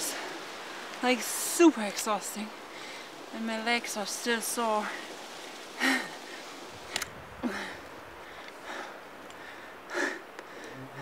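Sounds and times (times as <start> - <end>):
steady low hiss: 0.0 - 11.0
light clicks: 6.9 - 7.1
person breathing hard: 7.4 - 10.9.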